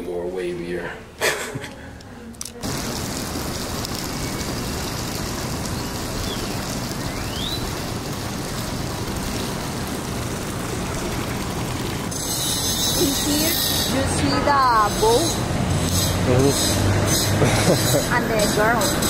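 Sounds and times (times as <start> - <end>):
running water rushing: 2.6 - 16.9.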